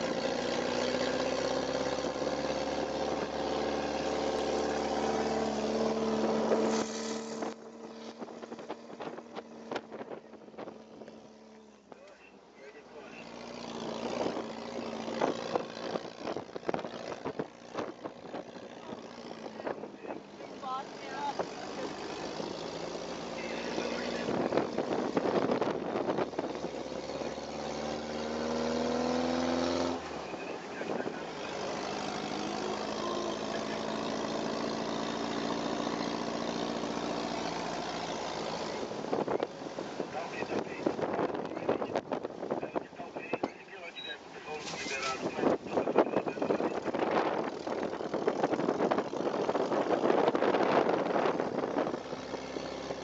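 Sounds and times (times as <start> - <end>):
buggy engine humming: 0.0 - 53.0
wind noise: 24.2 - 26.9, 39.0 - 43.2, 44.6 - 52.0.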